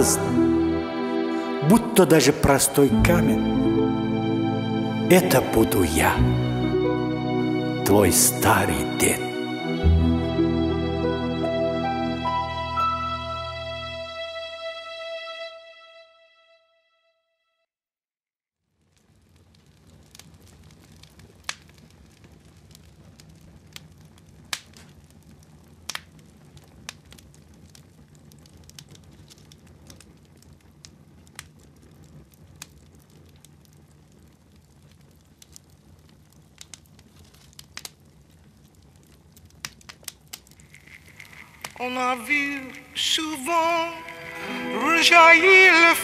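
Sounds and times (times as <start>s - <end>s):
irregular crackling and pops: 5.1s - 10.1s, 18.7s - 46.0s.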